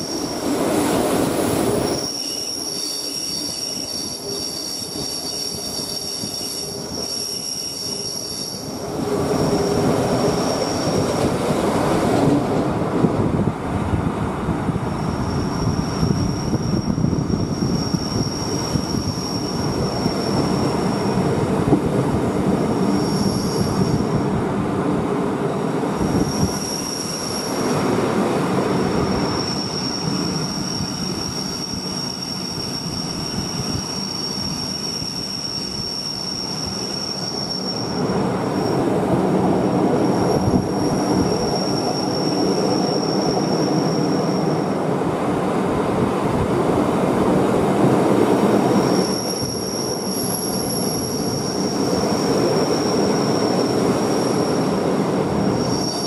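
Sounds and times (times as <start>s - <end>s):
high squeal from running gear: 0.0s - 11.4s, 14.9s - 21.3s, 22.7s - 24.2s, 26.0s - 27.9s, 28.7s - 39.0s, 39.8s - 44.8s, 48.6s - 56.0s
train wheels rumbling on rails: 0.0s - 56.0s.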